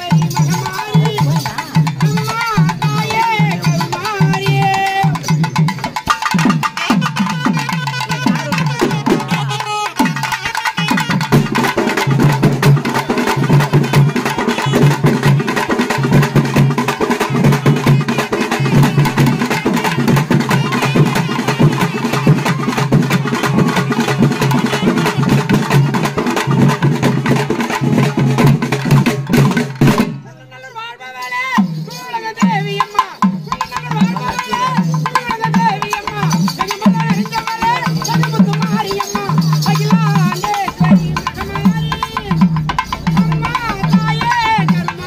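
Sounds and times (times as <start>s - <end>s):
fast loud drumming: 0.0s - 30.3s, 31.6s - 45.0s.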